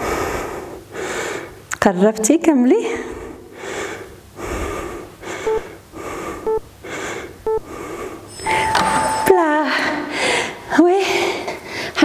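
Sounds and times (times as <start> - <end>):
woman breathing hard: 0.0 - 1.6, 2.9 - 8.4, 9.8 - 12.0
timer beeps: 5.5 - 5.7, 6.5 - 6.7, 8.4 - 9.7.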